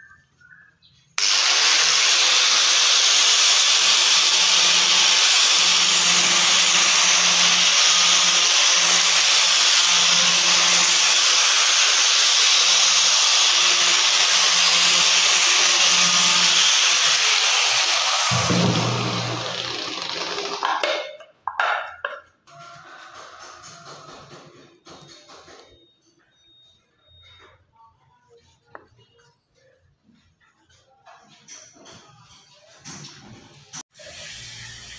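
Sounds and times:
angle grinder sanding wood: 0:01.2 - 0:20.6.

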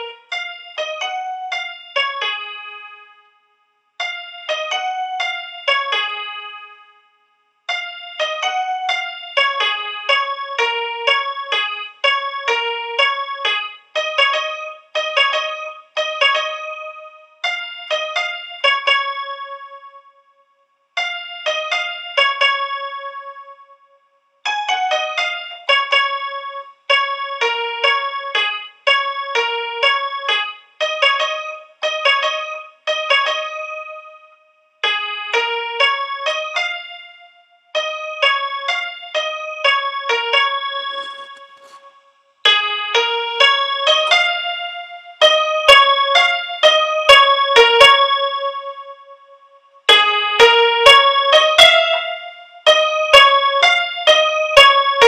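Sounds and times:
keyboard melody of single notes: 0:00.0 - 0:03.4, 0:04.0 - 0:07.1, 0:07.7 - 0:20.4, 0:21.0 - 0:55.0
keyboard tune: 0:37.8 - 0:42.0.

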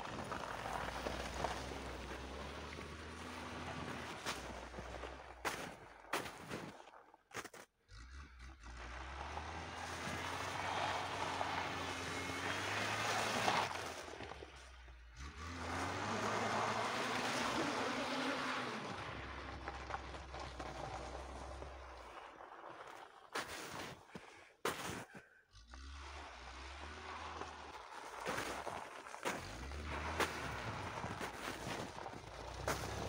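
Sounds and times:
wheels spinning on snow: 0:00.0 - 0:33.0
car engine revving hard: 0:15.1 - 0:19.6.

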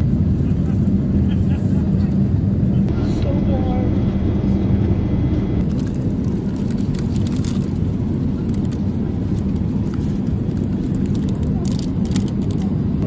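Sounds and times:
airliner cabin rumble: 0:00.0 - 0:13.0
plastic food cover crinkling: 0:05.7 - 0:07.8.

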